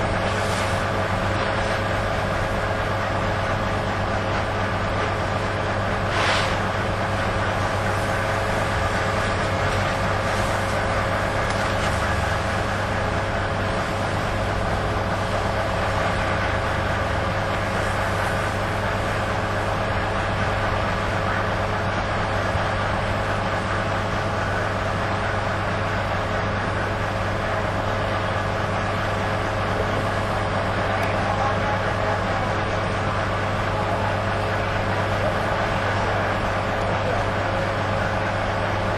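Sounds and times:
fire engine droning hum: 0:00.0 - 0:38.9
brief hiss: 0:06.1 - 0:06.6.

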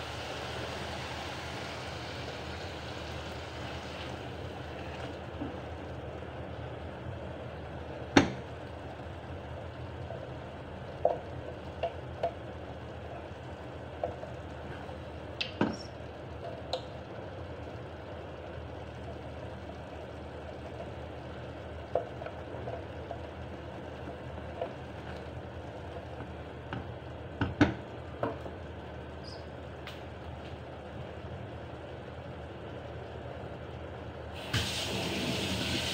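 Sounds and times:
steady hiss: 0:34.4 - 0:35.9.

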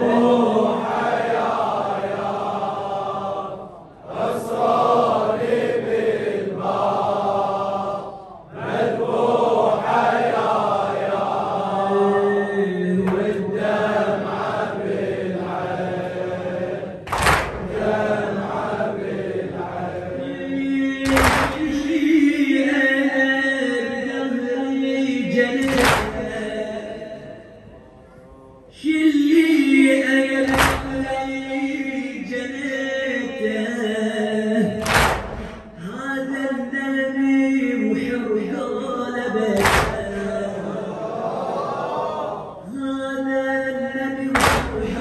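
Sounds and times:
men chanting in unison: 0:00.0 - 0:27.6, 0:28.6 - 0:45.0
reciter over microphone: 0:00.0 - 0:45.0.

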